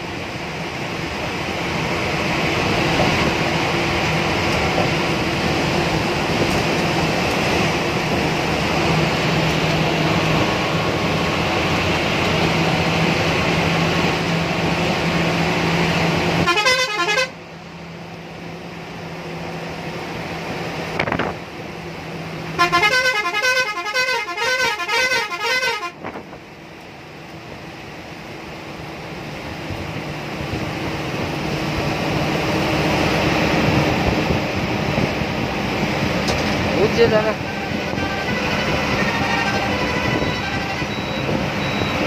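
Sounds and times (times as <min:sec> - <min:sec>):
bus engine drone: 0:00.0 - 0:42.0
wavering vehicle horn blasts: 0:16.4 - 0:17.4, 0:22.6 - 0:26.1, 0:37.4 - 0:41.1.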